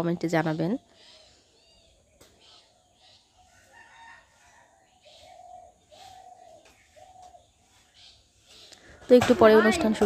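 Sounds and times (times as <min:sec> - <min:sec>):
faint rooster crowing: 0:03.0 - 0:07.5.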